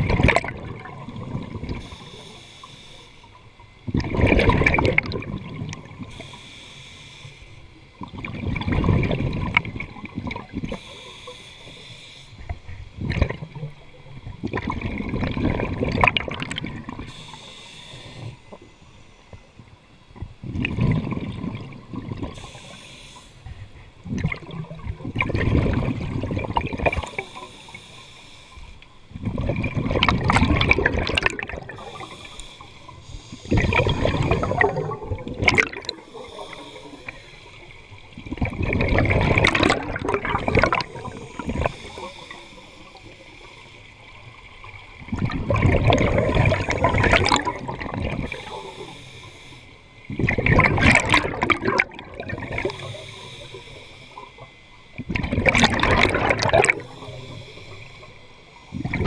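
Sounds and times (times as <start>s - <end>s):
underwater regulator exhalation bubbles: 0.0s - 2.0s, 3.9s - 6.2s, 8.0s - 10.8s, 13.0s - 13.7s, 14.4s - 17.1s, 20.4s - 22.8s, 24.0s - 27.3s, 29.2s - 32.5s, 33.4s - 37.2s, 38.2s - 42.1s, 45.0s - 48.8s, 50.1s - 53.0s, 55.0s - 57.2s, 58.7s - 59.0s.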